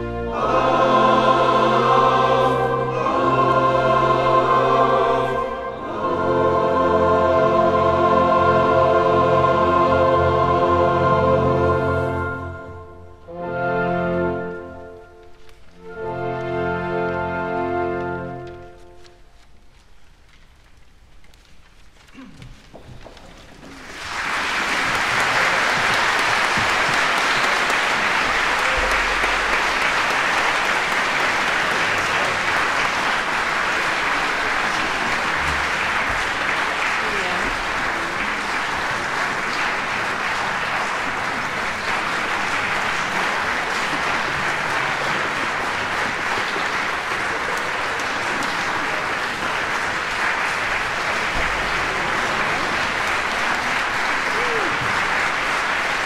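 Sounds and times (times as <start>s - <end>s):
audience applauding: 22.1s - 56.0s.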